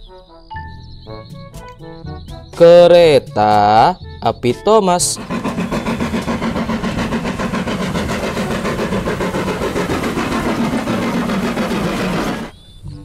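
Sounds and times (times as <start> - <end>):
steam locomotive chuffing: 5.0 - 12.6.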